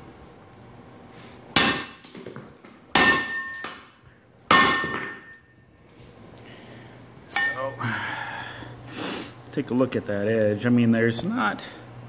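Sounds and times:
shovel blade striking paver: 1.6 - 3.9, 4.5 - 5.4.

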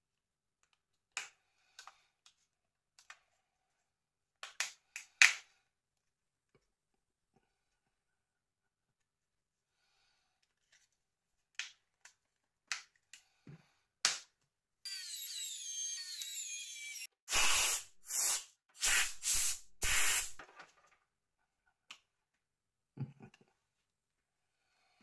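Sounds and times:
hissing with falling squeak: 14.9 - 20.3.

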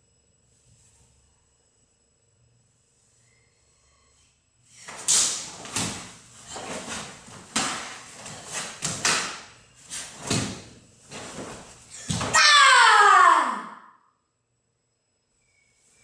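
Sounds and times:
bare feet striking tiled floor: 4.9 - 12.4.

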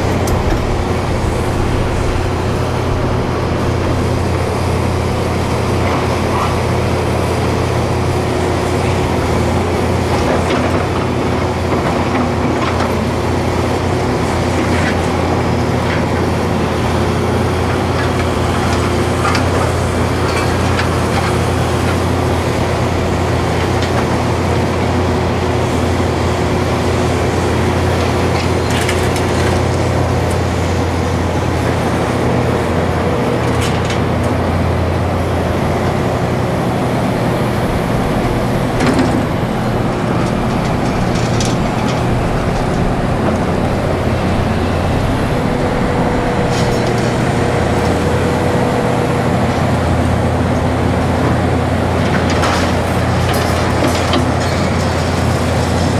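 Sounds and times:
excavator diesel engine running: 0.0 - 55.9.

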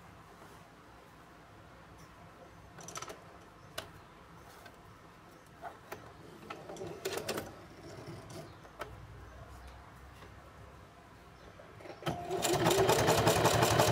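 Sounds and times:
sewing machine clicking and knocking: 6.5 - 8.9, 11.8 - 13.9.

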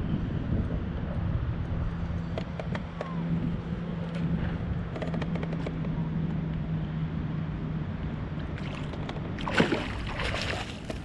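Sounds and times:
wind noise: 0.0 - 6.6
water noise: 8.1 - 11.0
fish splashing in water: 8.6 - 11.0.

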